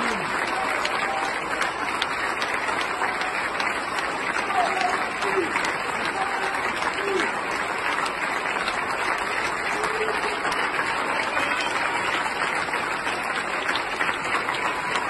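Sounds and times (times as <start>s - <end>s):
large audience applauding: 0.0s - 15.0s.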